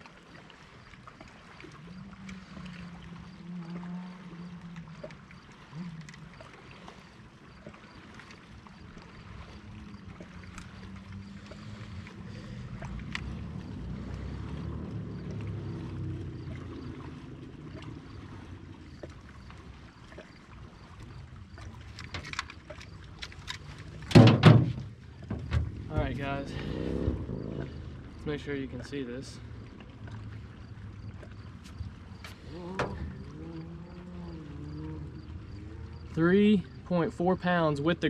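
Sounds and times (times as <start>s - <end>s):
water lapping against boat hull: 0.0s - 38.0s
light clicks of gear handled: 21.8s - 24.1s.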